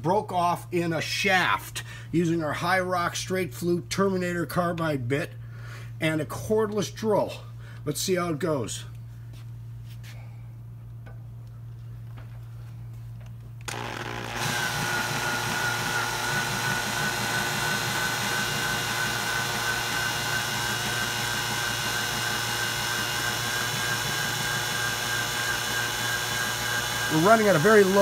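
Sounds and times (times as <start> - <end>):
drill whining into steel bolt: 13.6 - 28.0.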